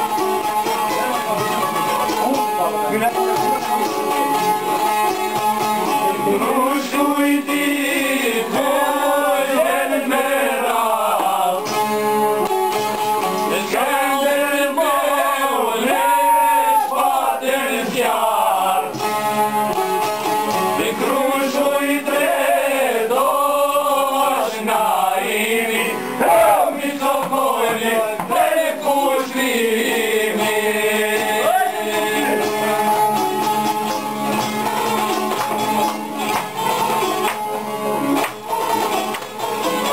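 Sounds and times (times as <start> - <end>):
plucked lutes: 0.0 - 18.2, 18.8 - 22.3, 26.0 - 39.9
men singing folk song: 5.9 - 12.0, 13.4 - 19.1, 20.7 - 33.4.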